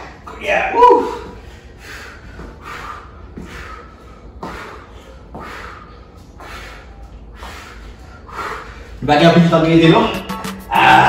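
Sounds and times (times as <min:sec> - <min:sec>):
man breathing hard: 0:01.2 - 0:09.0.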